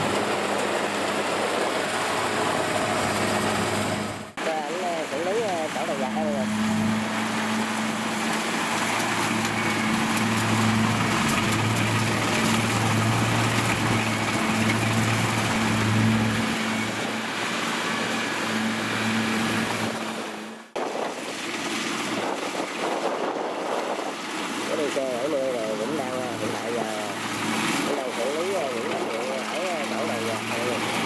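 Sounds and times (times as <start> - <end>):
distant machine sound: 0.0 - 22.1
combine harvester running: 0.0 - 31.0.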